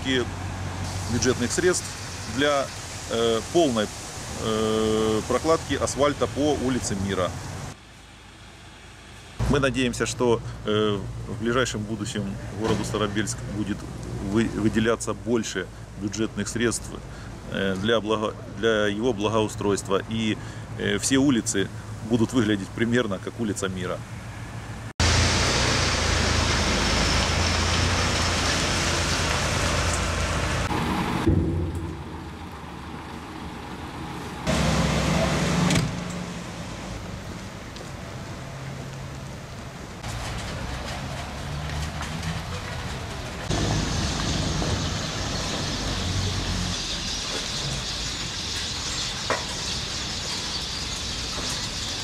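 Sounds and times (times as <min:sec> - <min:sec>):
steady hiss: 0:00.0 - 0:24.0
vehicle engine hum: 0:00.0 - 0:52.0.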